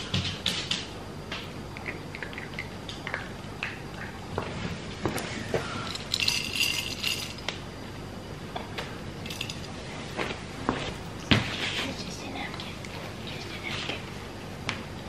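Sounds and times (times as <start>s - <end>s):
dry kibble rattling: 6.1s - 7.4s.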